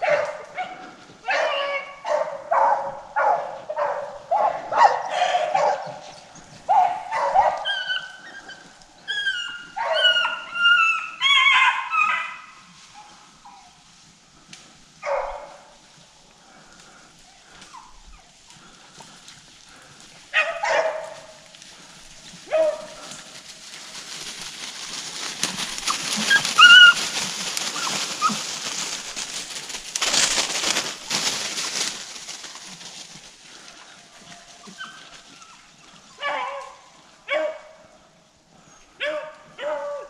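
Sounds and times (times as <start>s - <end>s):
dogs baying: 0.0s - 13.6s, 19.7s - 29.7s, 39.0s - 40.0s
crackling rustling noise: 12.6s - 36.0s.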